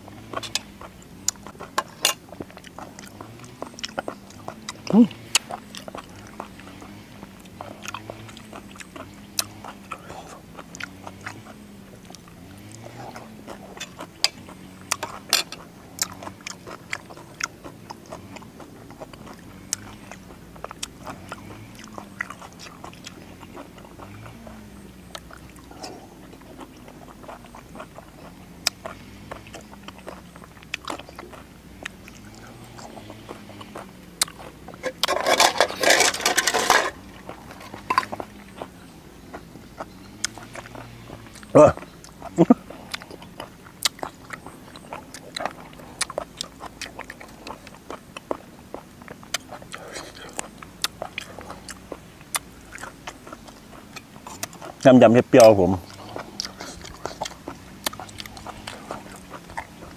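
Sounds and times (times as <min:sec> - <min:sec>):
man chewing with smacking: 0:00.0 - 0:59.9
clatter: 0:34.8 - 0:38.2.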